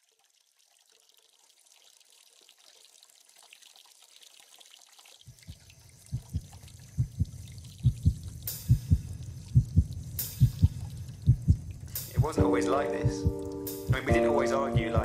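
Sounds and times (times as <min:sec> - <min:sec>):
trickling dripping water: 0:00.0 - 0:15.0
deep heartbeat-like thuds: 0:05.4 - 0:14.2, 0:14.8 - 0:15.0.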